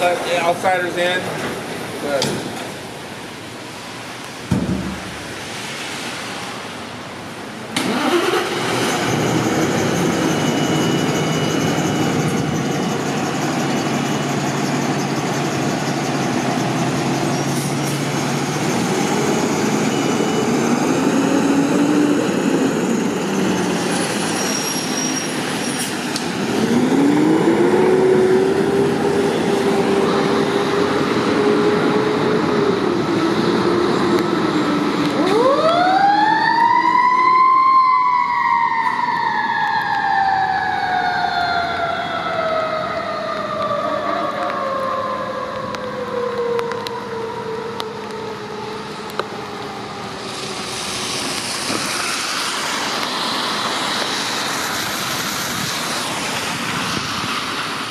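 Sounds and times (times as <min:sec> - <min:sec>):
diesel engine starting and revving: 0:07.7 - 0:10.8, 0:25.3 - 0:35.1
mechanical siren wailing: 0:35.0 - 0:50.7.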